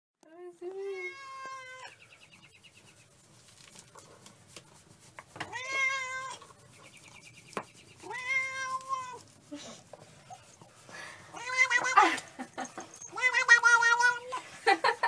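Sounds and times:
cat meowing: 0.8 - 1.9, 5.5 - 6.5, 8.0 - 9.2, 11.3 - 12.1, 13.0 - 14.4.

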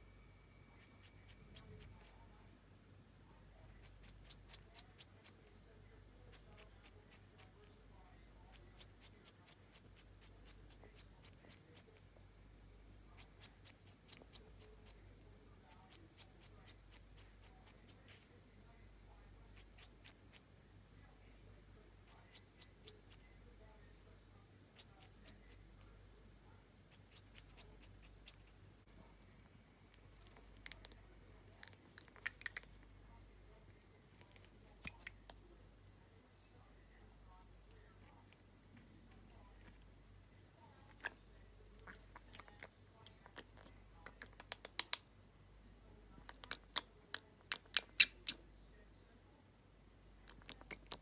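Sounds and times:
low steady hum: 0.0 - 51.0
parrot beak clicks: 31.6 - 32.8, 43.4 - 45.0, 46.3 - 48.4.

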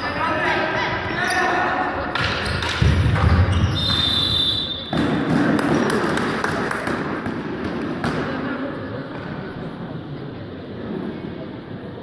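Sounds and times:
crowd noise: 0.0 - 12.0
referee's whistle: 3.5 - 5.0
hand clapping: 5.6 - 7.1.

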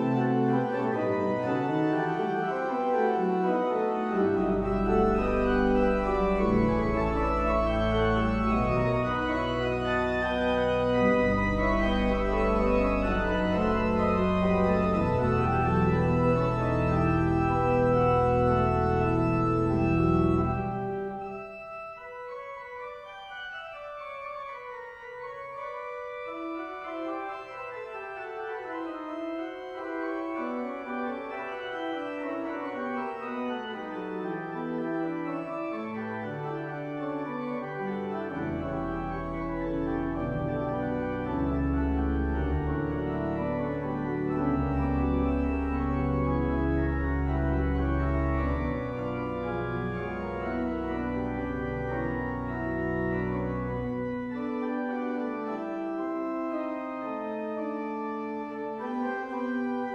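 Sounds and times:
church organ playing chords: 0.0 - 59.9.

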